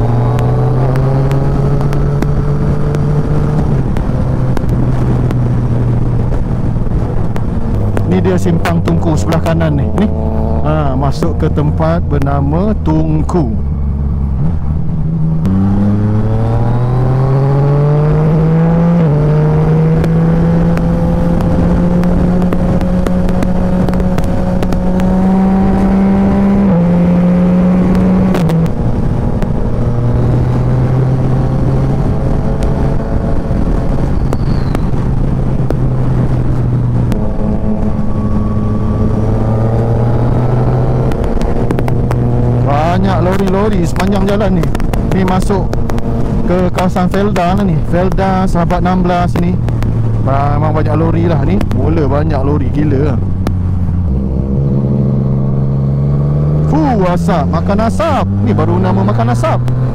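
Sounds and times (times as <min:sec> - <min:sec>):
motorcycle engine revving: 0:00.0 - 0:59.9
wind noise: 0:00.0 - 0:59.9.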